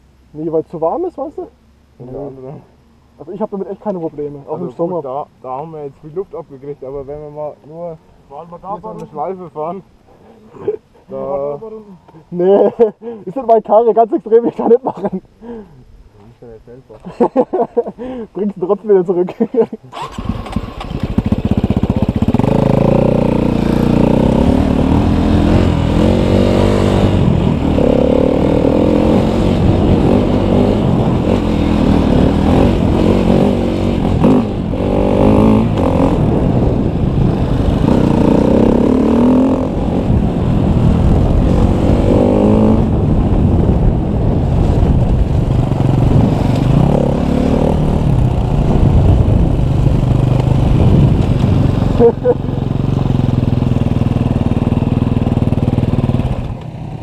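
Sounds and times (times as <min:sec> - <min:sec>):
dirt bike engine revving: 0:20.0 - 0:56.5.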